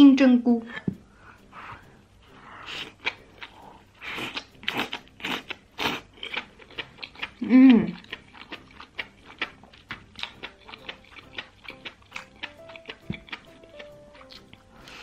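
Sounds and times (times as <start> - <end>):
wet chewing with mouth clicks: 1.4 - 15.0
slurping: 1.6 - 15.0
person humming mmm: 7.2 - 8.2.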